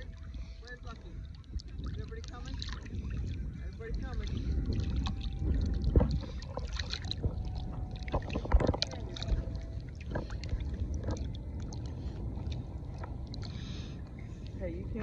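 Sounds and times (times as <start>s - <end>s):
low wind rumble: 0.0s - 15.0s
seawater splashing and sloshing: 0.0s - 15.0s.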